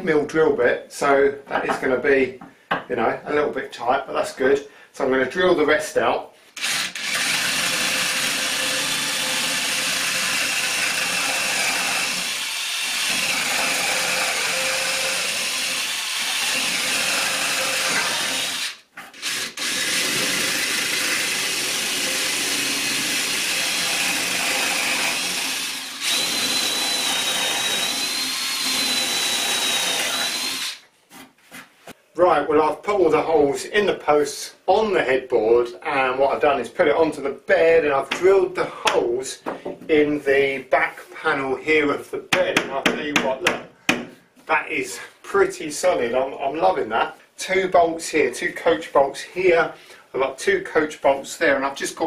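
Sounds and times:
cordless drill boring through wood: 6.6 - 30.8.

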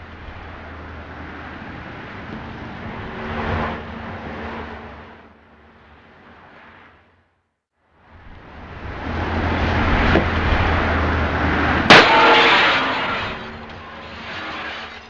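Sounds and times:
vehicle approaching rush: 0.0 - 7.3, 7.9 - 14.4
loud crash impact: 11.9 - 15.0
metallic clanging: 11.9 - 15.0.

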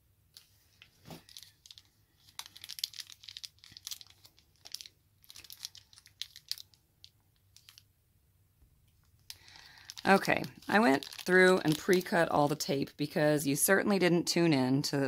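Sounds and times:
plastic bag crinkling: 0.4 - 7.9, 9.2 - 12.7.

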